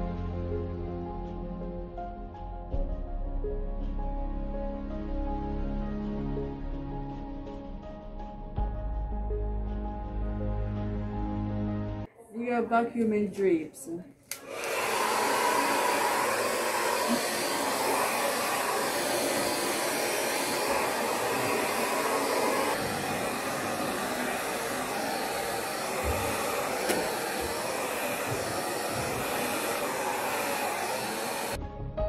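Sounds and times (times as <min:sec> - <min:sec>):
handheld vacuum fan motor running: 0:14.3 - 0:31.6.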